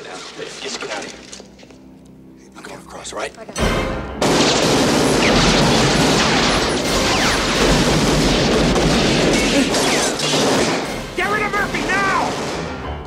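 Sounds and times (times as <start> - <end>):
booms and crashing: 4.2 - 12.8
heavy gunfire: 4.2 - 13.0.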